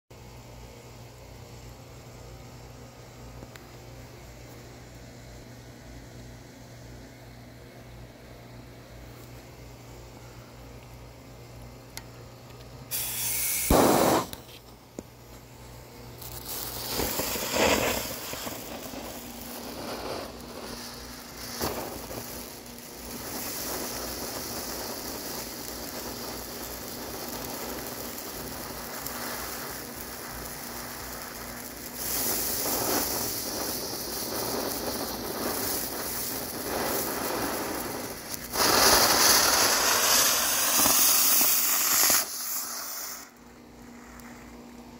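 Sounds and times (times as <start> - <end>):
firework fountain hissing: 12.9 - 44.9.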